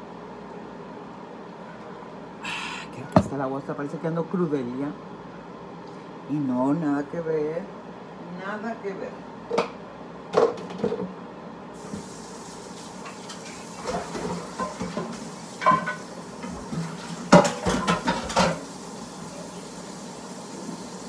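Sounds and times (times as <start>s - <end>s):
steady hiss: 11.8s - 17.3s
dishes and pans clinking: 13.1s - 18.7s.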